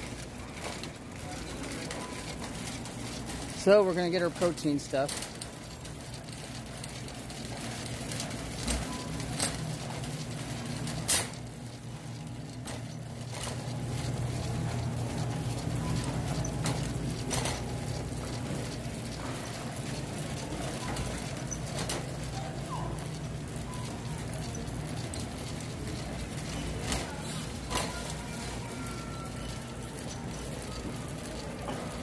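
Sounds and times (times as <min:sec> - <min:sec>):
shopping cart rattling on concrete: 0:00.0 - 0:32.0.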